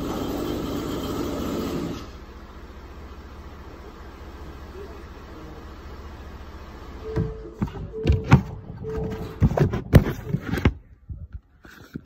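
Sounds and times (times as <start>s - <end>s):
knocks and clattering: 7.1s - 12.0s.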